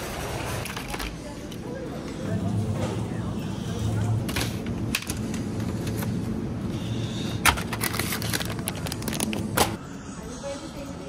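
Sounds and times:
chiller hum: 0.0s - 11.0s
plastic bag crackling: 7.8s - 9.6s.

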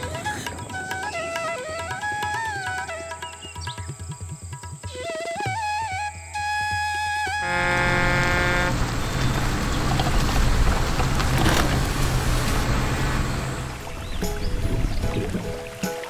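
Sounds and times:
vehicle engine humming: 7.4s - 15.0s.

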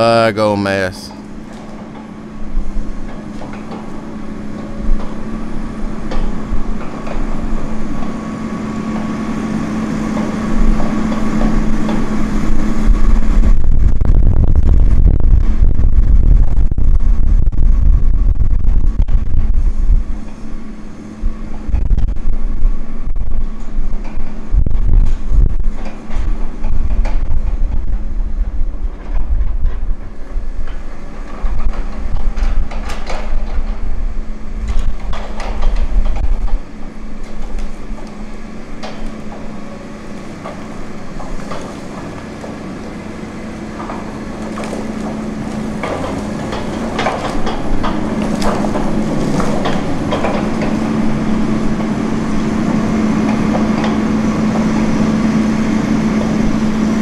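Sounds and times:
diesel engine humming: 0.0s - 57.0s
heavy low rumble: 0.0s - 57.0s
logs knocking and clunking: 34.6s - 52.0s.

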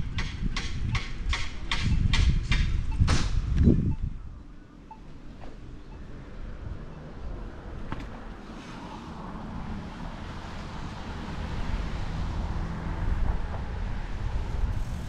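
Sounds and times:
wind and road noise rumble: 0.0s - 15.0s.

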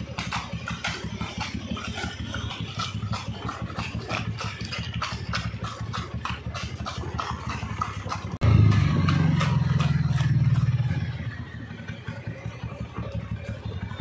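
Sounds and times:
small engine running: 0.0s - 14.0s.

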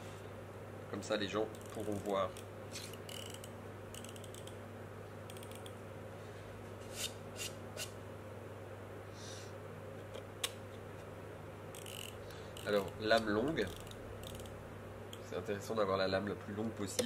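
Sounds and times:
utility knife blade slider ratcheting: 2.8s - 4.5s, 11.8s - 14.5s.

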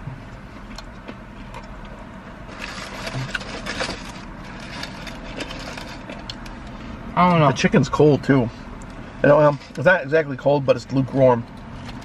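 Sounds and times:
car cabin hum: 0.0s - 12.0s
food handling clicks and crackles: 0.3s - 6.8s, 11.4s - 12.0s.

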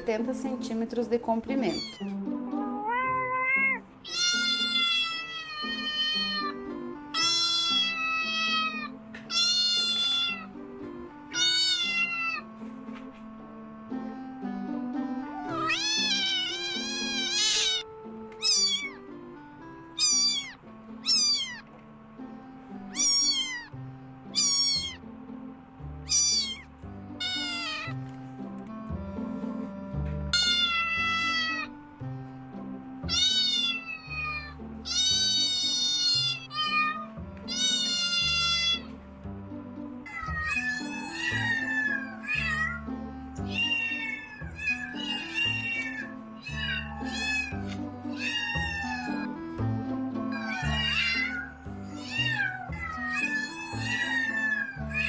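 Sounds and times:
background music: 0.0s - 55.0s
kitten mewing: 1.7s - 6.6s, 7.2s - 10.5s, 11.3s - 12.5s, 15.3s - 19.0s, 20.0s - 21.7s, 22.9s - 25.0s, 26.0s - 28.0s, 30.4s - 31.8s, 33.0s - 38.9s, 40.1s - 49.4s.

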